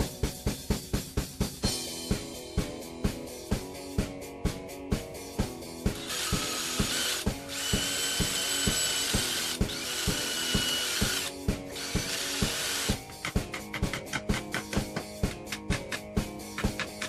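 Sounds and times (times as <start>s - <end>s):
background music with steady beat: 0.0s - 17.0s
cordless drill drilling wood: 6.0s - 13.0s.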